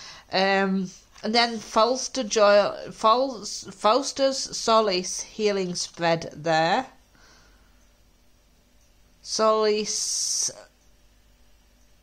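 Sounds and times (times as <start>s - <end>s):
faint breath: 0.0s - 0.3s, 7.1s - 7.9s.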